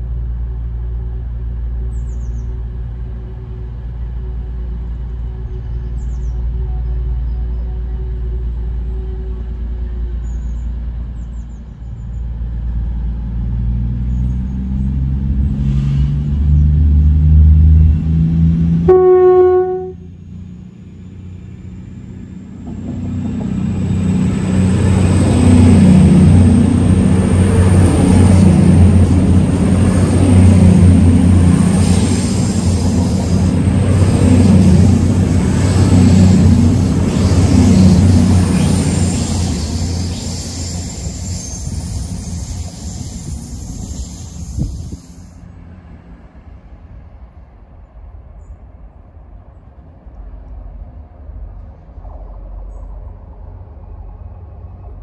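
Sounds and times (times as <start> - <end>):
diesel train engine: 0.0 - 55.0
train wheels rumbling on rail: 0.0 - 55.0
train horn blast: 18.8 - 20.2.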